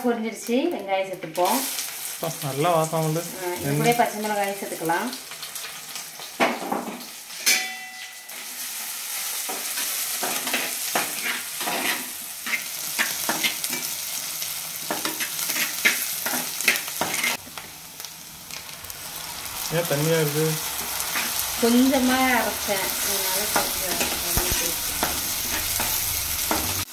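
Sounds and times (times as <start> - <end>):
onions sizzling in oil: 0.0 - 26.9.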